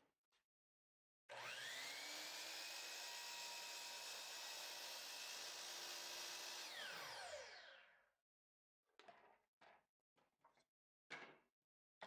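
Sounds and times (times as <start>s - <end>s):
miter saw motor whining: 1.4s - 7.8s.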